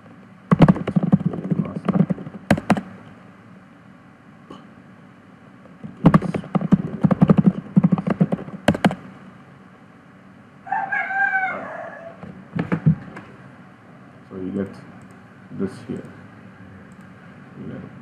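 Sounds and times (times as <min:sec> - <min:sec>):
keyboard keys clicking: 0:00.5 - 0:02.9, 0:06.1 - 0:09.0
rooster crowing: 0:10.6 - 0:12.2.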